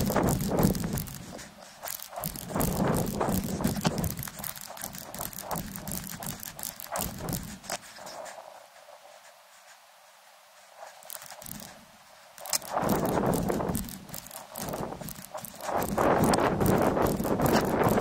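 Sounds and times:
handling knocks and clicks: 0.0s - 7.8s, 12.4s - 18.0s.

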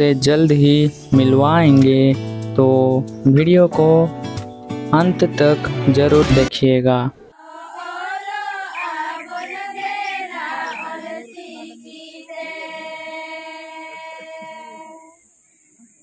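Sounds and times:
group of women singing: 7.3s - 15.2s.

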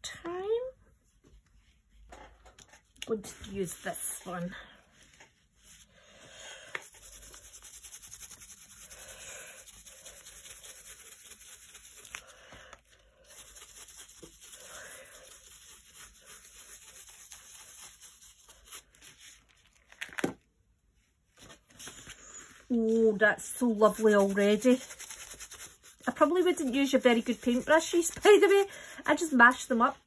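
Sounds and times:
paintbrush rubbing on paper: 1.0s - 5.9s, 6.7s - 19.5s, 22.0s - 30.0s.

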